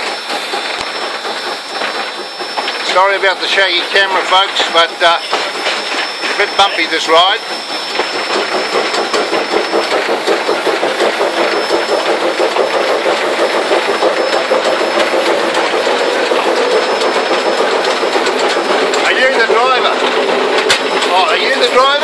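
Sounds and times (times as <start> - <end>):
steam locomotive running: 0.0 - 22.0.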